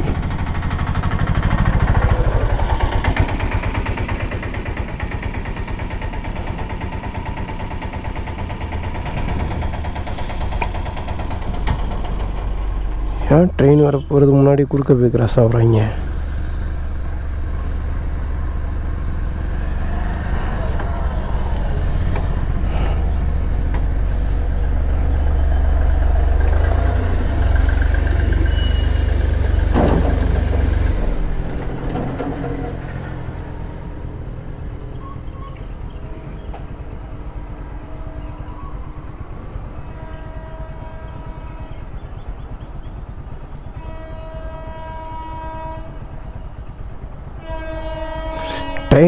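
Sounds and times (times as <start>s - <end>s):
car horns tooting: 13.3s - 15.0s, 39.8s - 42.0s, 43.7s - 46.1s, 47.4s - 49.0s.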